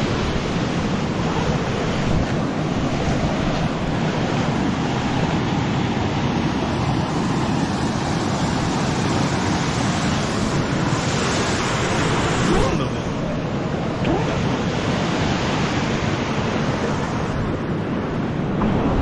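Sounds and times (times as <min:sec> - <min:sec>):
wind buffeting microphone: 0:13.7 - 0:19.0.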